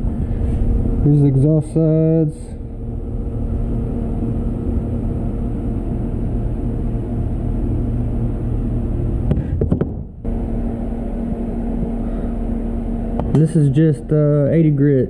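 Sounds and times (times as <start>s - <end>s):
constant hum: 0.0s - 15.0s
low rumble: 0.0s - 15.0s
camera handling knocks: 9.3s - 10.1s.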